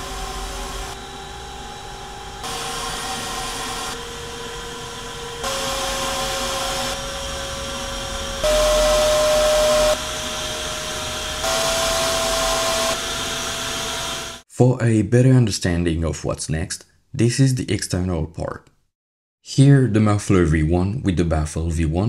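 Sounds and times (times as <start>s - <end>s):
blower whine and air rush: 0.0s - 14.4s.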